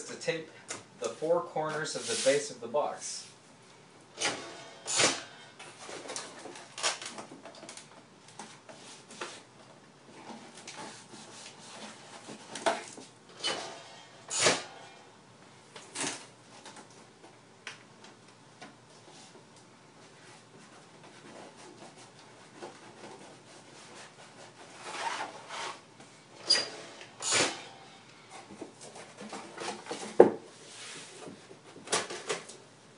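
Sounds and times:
cardboard rubbing and scraping: 20.1 - 25.8
cardboard knocking and thudding: 29.1 - 30.5.

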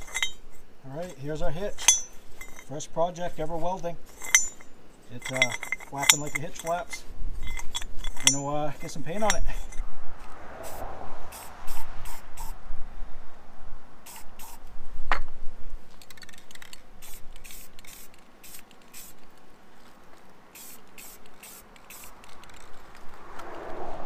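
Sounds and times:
spray-paint can hissing: 10.6 - 12.6, 14.0 - 14.6, 16.2 - 19.3, 20.5 - 23.0.

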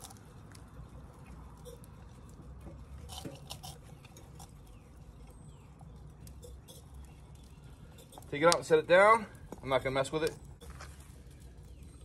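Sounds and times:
wood fire crackling: 0.0 - 12.0
stick clicking and scraping glass jar: 3.0 - 4.8, 6.2 - 8.7.

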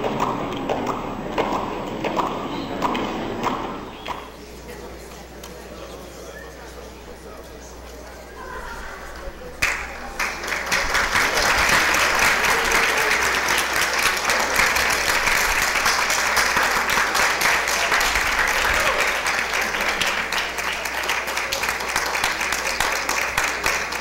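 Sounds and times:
audience applauding: 9.2 - 24.0.

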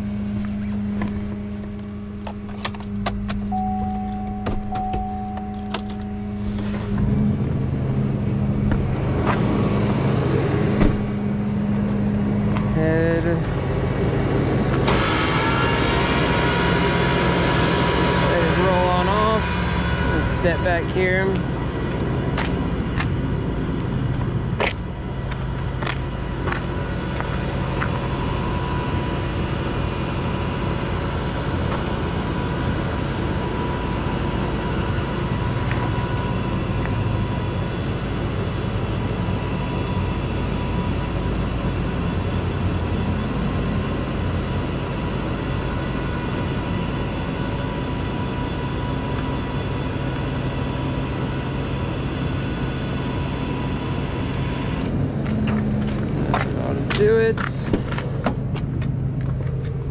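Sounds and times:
faint steady whine: 0.0 - 59.9
tow truck engine idling: 0.0 - 59.9.

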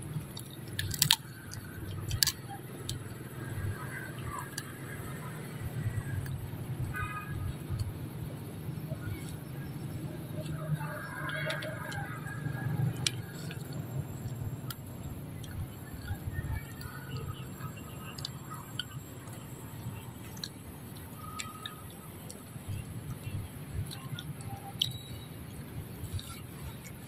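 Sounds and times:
low background rumble: 0.0 - 27.0
peanut shells cracking: 0.4 - 3.1.

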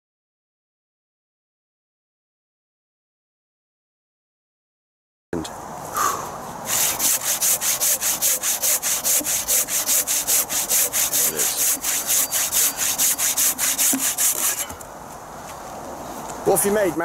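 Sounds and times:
hand saw cutting log: 6.7 - 14.8.

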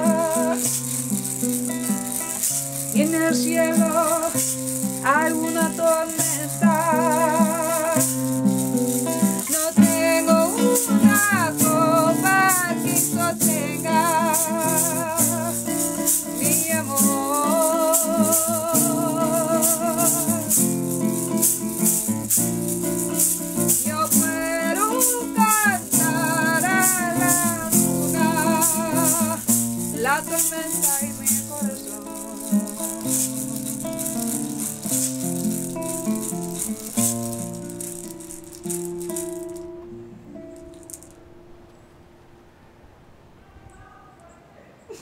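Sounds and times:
woman singing with vibrato: 0.0 - 0.8, 2.9 - 8.2, 9.0 - 22.4, 23.1 - 33.7
maracas shaking: 0.0 - 41.2
plucked acoustic guitar: 0.0 - 41.9.

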